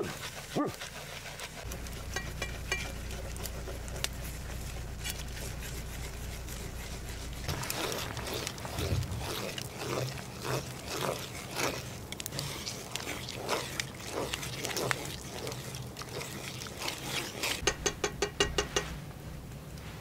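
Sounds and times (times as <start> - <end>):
wooden spatula scraping pan: 0.0 - 19.0
sharp crackles: 7.4 - 15.0.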